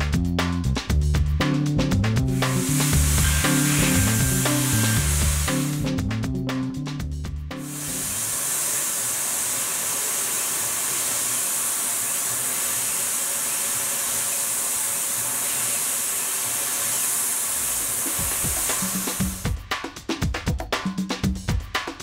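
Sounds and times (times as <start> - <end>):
air blasting from nozzle: 2.3 - 6.0, 7.6 - 19.5
milling machine cutting metal: 2.4 - 5.9, 7.6 - 19.4.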